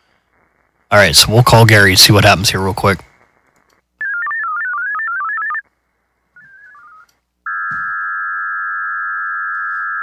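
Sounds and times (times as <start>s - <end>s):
steady modem tone: 0.9s - 5.7s, 6.3s - 10.0s
modem stepping tones: 6.4s - 10.0s.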